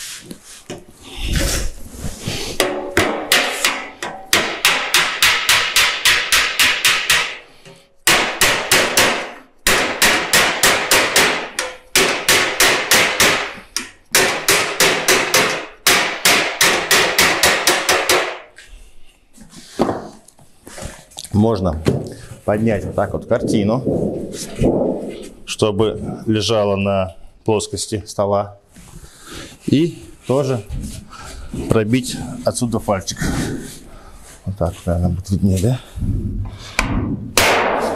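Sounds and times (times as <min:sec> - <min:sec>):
hammer tapping on sheet metal: 0:02.6 - 0:18.5.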